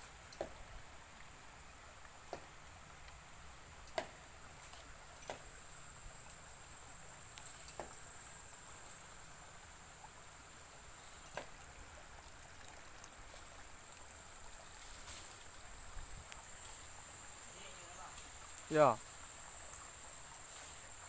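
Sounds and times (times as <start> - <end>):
even hiss: 2.2 - 12.4, 13.3 - 21.0.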